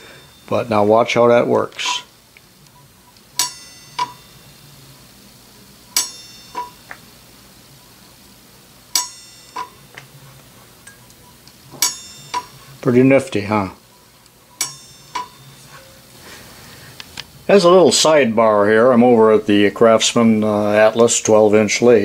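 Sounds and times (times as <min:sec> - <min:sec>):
ringing metallic clicks: 0:03.4 - 0:04.4, 0:06.0 - 0:07.0, 0:08.9 - 0:10.1, 0:10.8 - 0:12.6, 0:14.6 - 0:15.6.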